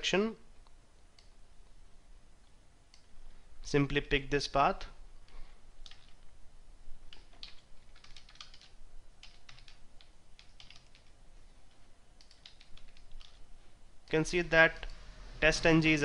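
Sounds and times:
faint keyboard typing: 0:00.6 - 0:01.8, 0:05.2 - 0:06.4, 0:07.0 - 0:14.2.

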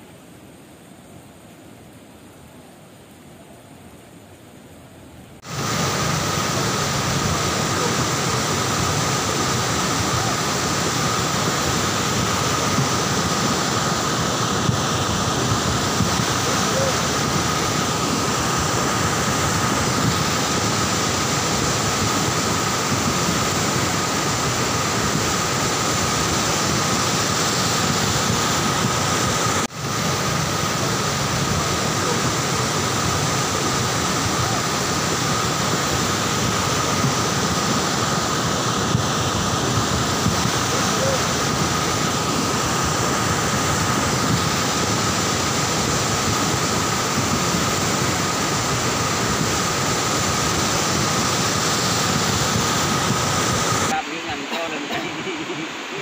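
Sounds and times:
volcanic mudflow rushing down river: 0:00.0 - 0:56.0.

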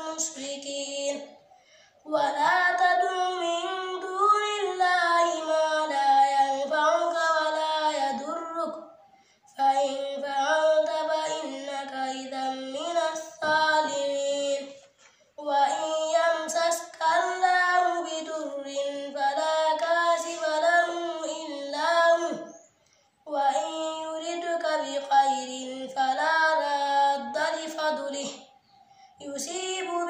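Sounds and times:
child chanting melodically: 0:00.0 - 0:30.0.

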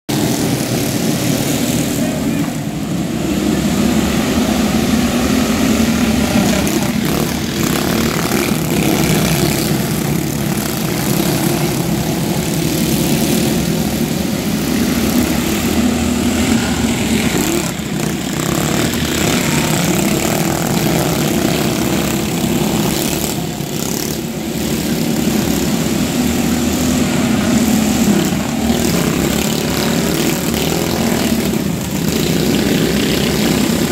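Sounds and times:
small racing engines droning: 0:00.1 - 0:33.9.

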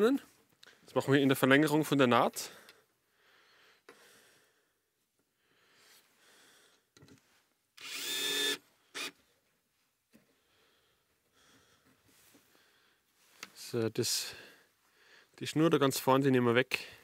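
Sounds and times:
cordless drill driving screw: 0:07.8 - 0:09.2.

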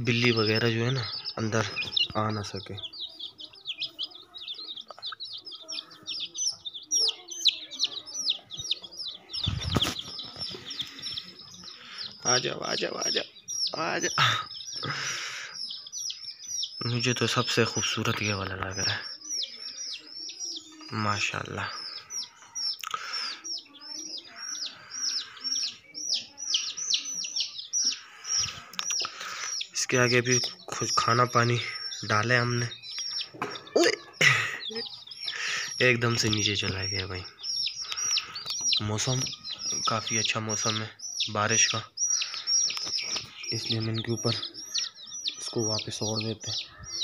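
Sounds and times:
chicks peeping: 0:00.0 - 0:47.0.

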